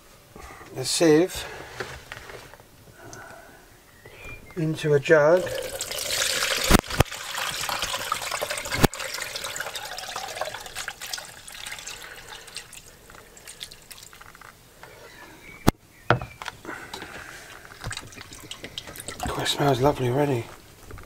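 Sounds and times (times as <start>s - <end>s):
liquid pouring through a sieve: 5.4s - 14.3s, 17.2s - 19.8s.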